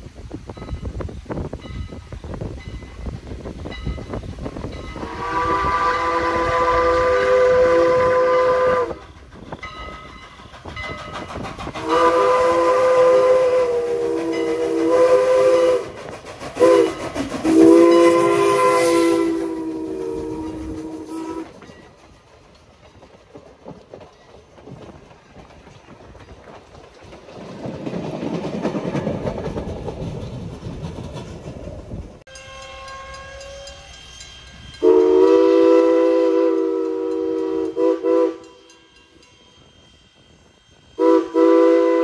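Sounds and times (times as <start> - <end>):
train cars clickety-clack: 0.0 - 42.0
steam locomotive chime whistle: 0.5 - 22.0, 32.3 - 42.0.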